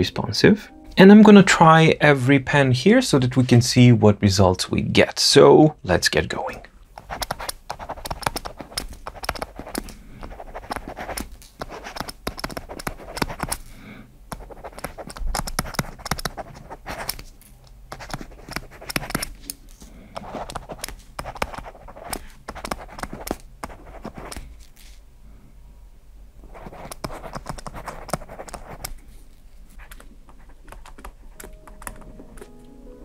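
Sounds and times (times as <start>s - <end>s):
stylus scratching on screen: 7.0s - 13.6s, 14.3s - 17.3s, 17.9s - 19.4s, 20.2s - 24.5s, 26.5s - 29.0s, 29.7s - 32.4s.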